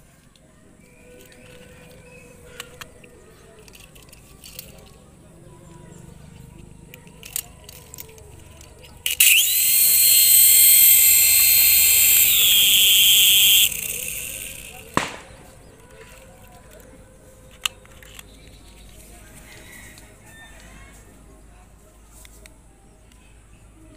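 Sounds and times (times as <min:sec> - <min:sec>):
toy helicopter motors whining: 0:01.0 - 0:05.0, 0:06.5 - 0:18.3
sharp clicks: 0:06.9 - 0:15.6.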